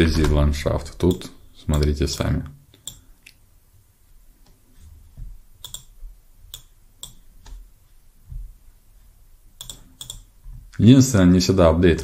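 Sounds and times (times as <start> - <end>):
low room noise: 0.0 - 12.0
computer mouse clicking: 2.8 - 3.4, 5.6 - 7.6, 9.6 - 10.3.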